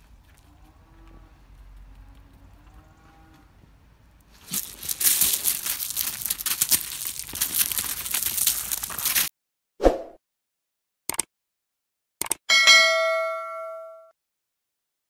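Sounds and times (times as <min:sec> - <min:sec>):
paws crunching on gravel: 0:04.2 - 0:09.3.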